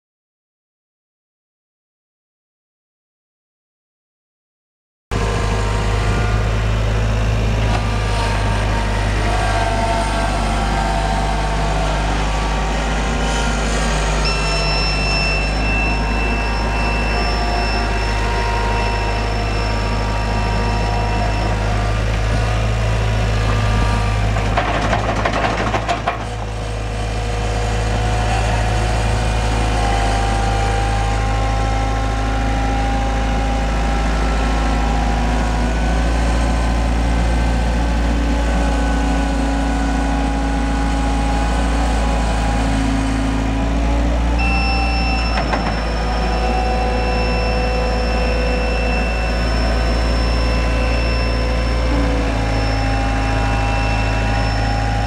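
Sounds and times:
diesel engine running: 5.1 - 55.0.

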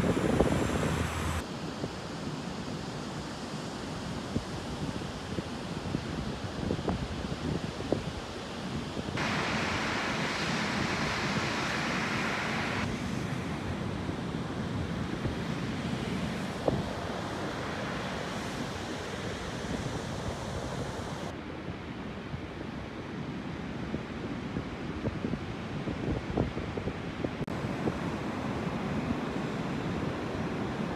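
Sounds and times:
wind buffeting microphone: 0.0 - 1.4
ocean surf: 0.0 - 3.1, 9.2 - 23.6, 27.5 - 30.9.

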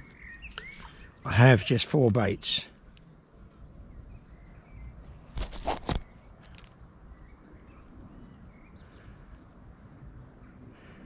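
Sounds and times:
faint bird chirps: 0.0 - 1.8, 2.6 - 11.0
sharp rustling or knocking: 5.3 - 6.8.

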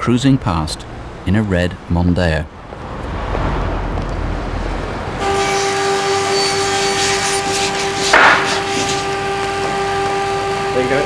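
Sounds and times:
car driving past: 2.5 - 11.0
workshop machinery humming: 4.5 - 11.0.

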